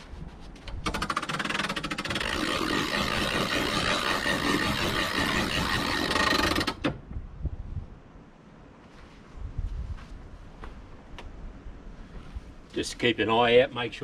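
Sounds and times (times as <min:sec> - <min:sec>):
winder ratcheting clatter: 0:00.8 - 0:06.9.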